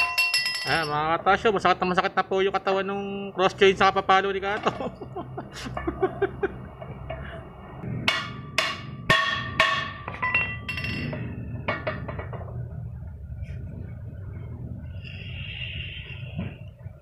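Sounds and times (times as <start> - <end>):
hammer striking metal: 8.0 - 12.3.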